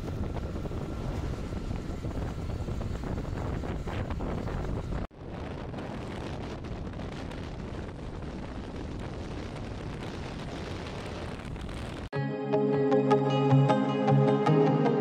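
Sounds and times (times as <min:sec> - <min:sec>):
road noise: 0:00.0 - 0:08.1
wind buffeting microphone: 0:00.0 - 0:12.1
music: 0:12.1 - 0:15.0.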